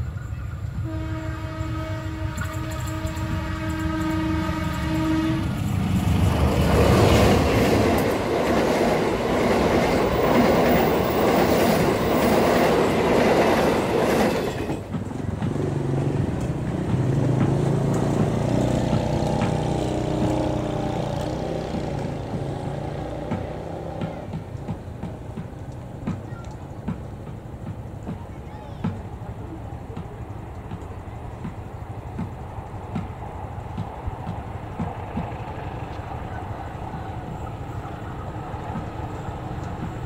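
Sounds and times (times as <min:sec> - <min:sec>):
train passing with rail clatter: 0:00.0 - 0:40.0
locomotive horn: 0:00.8 - 0:05.6
diesel engine droning: 0:15.2 - 0:25.9.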